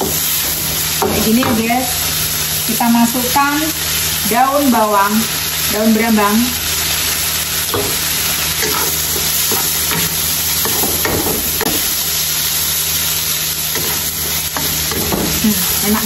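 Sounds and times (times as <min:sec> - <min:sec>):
food sizzling in a wok: 0:00.0 - 0:16.0
spatula scraping a wok: 0:05.8 - 0:12.0, 0:13.2 - 0:16.0.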